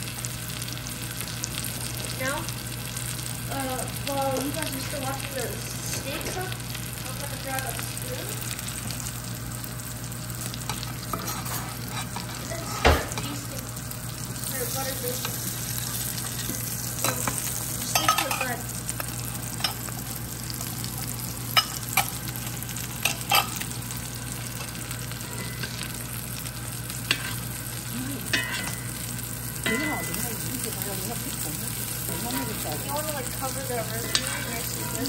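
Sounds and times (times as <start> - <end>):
fish sizzling in butter: 0.0 - 35.0
metal spoon clinking against pan: 17.0 - 18.5, 28.3 - 29.0, 29.6 - 30.2.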